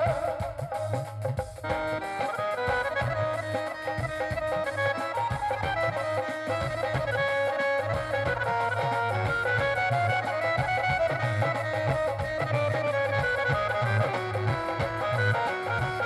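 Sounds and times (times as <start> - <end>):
dhol drum beat: 0.0 - 16.0
electronic keyboard melody: 0.0 - 16.0.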